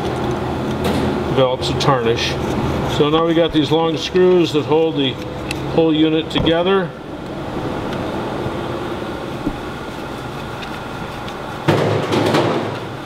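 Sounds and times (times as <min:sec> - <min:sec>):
mechanical hum and hiss: 0:00.0 - 0:13.0
rough rasping noise: 0:01.6 - 0:06.1, 0:09.2 - 0:11.7.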